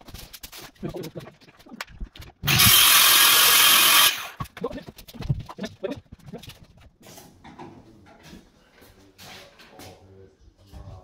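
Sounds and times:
circular saw cutting: 0:02.5 - 0:04.4.

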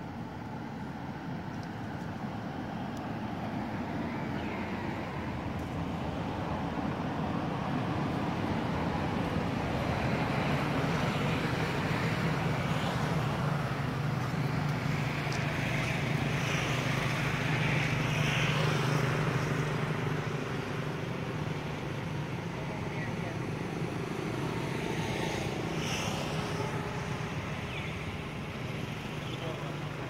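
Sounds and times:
outdoor background noise: 0:00.0 - 0:30.0.

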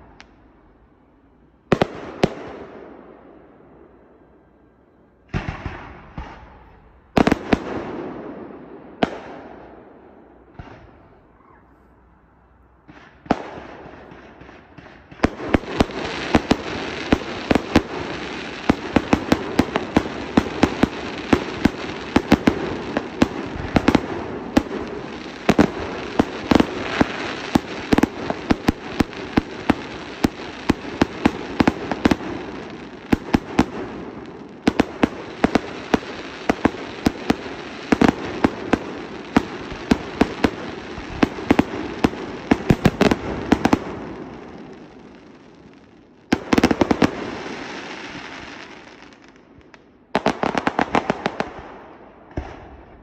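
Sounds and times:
fireworks barrage: 0:00.0 - 0:03.6, 0:05.2 - 0:11.5, 0:12.4 - 0:49.4, 0:50.1 - 0:53.0
fireworks bangs with echo: 0:01.6 - 0:03.6, 0:05.2 - 0:11.6, 0:12.8 - 0:53.0
fireworks crackling: 0:12.4 - 0:53.0.

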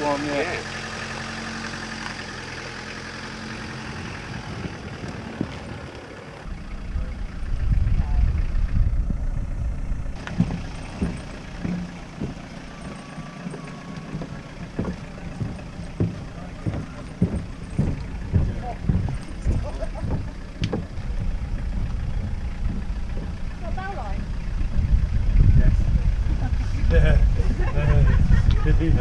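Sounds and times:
car engine idling: 0:00.0 - 0:29.0
loud low rumble: 0:03.6 - 0:29.0
sharp knocks and clatter: 0:10.2 - 0:23.9.

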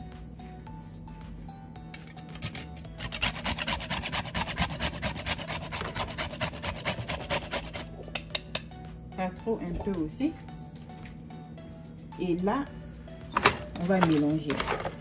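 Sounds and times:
nutmeg grating on metal grater: 0:02.3 - 0:07.9.

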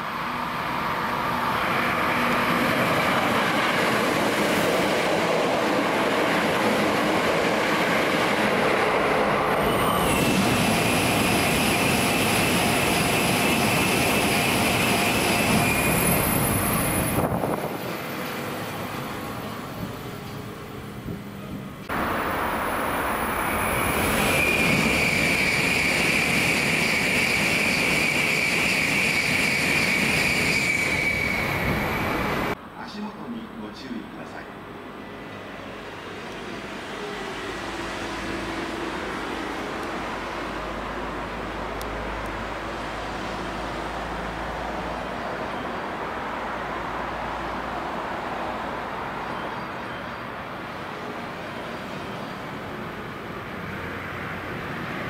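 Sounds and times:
train rushing rail noise: 0:00.0 - 0:55.0
high-pitched wheel squeal: 0:09.6 - 0:17.3, 0:23.4 - 0:32.5.

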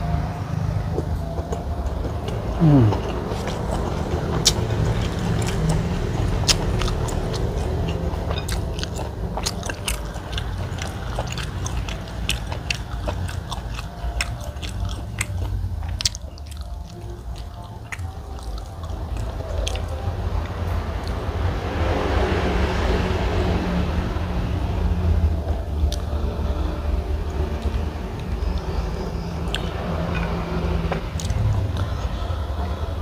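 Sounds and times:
steady low hum: 0:00.0 - 0:33.0
person chewing with lip smacks: 0:06.4 - 0:20.0, 0:29.5 - 0:30.3.

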